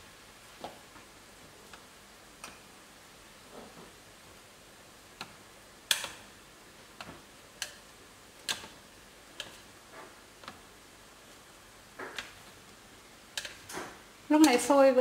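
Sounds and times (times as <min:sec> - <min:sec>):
chopsticks clicking on metal pot: 0:05.2 - 0:06.2, 0:07.0 - 0:09.7, 0:13.3 - 0:13.8, 0:14.4 - 0:14.7.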